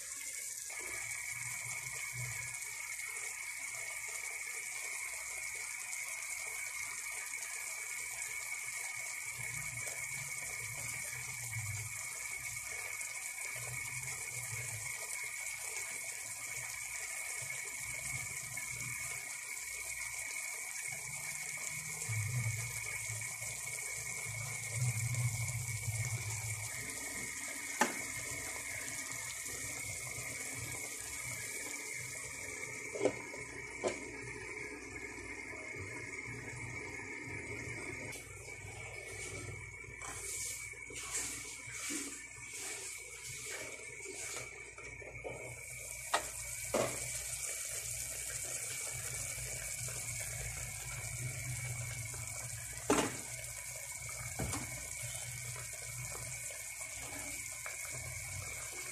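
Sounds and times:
food sizzling in a wok: 0.0 - 58.9.

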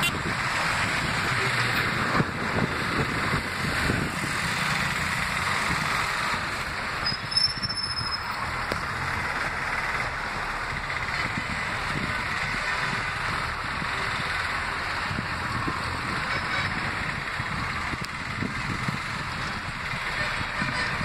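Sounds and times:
engine and tyre rumble: 0.0 - 21.0
brief high squeal: 7.0 - 8.3.

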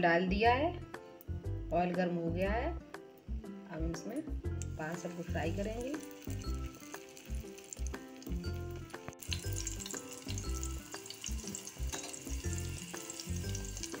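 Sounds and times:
background music with bass notes: 0.0 - 14.0
oil sizzling in a pan: 4.0 - 14.0.

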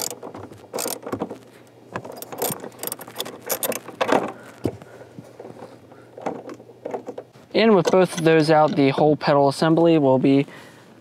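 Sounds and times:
socket ratchet clicking: 0.0 - 0.2, 0.8 - 1.1, 2.1 - 3.8.

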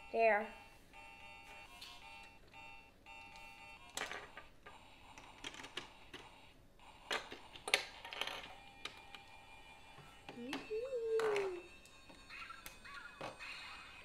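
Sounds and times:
plastic pieces clicking and rattling: 5.2 - 6.2, 7.1 - 9.2.

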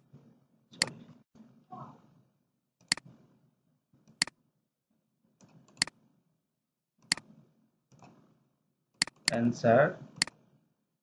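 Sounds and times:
computer mouse clicking: 2.8 - 3.2, 4.0 - 4.4, 5.4 - 6.0, 7.0 - 8.3, 9.0 - 9.4, 10.1 - 10.4.

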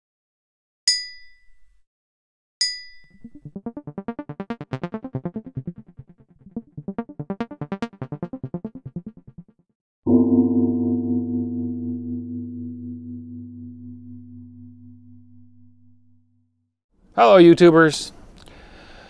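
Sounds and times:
electronic pulsing warble: 3.2 - 9.2, 10.1 - 16.5.

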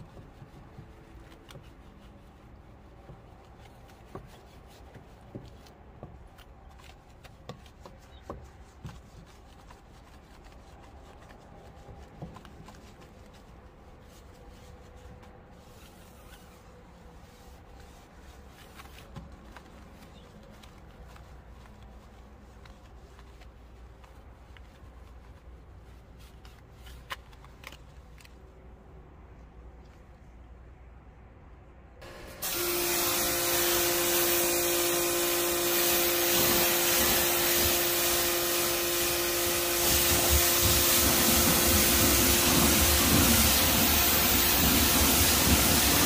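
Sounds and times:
brush scrubbing wet wheel: 0.0 - 26.8, 32.4 - 46.0.

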